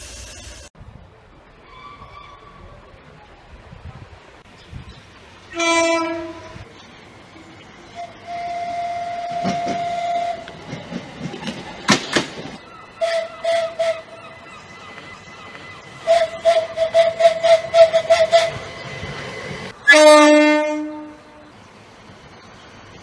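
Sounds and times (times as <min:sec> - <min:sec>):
train horn toots: 0:05.5 - 0:06.6, 0:07.9 - 0:10.6, 0:13.0 - 0:18.7, 0:19.8 - 0:21.5
low train horn blast: 0:05.5 - 0:06.7, 0:07.9 - 0:10.7, 0:13.0 - 0:21.6.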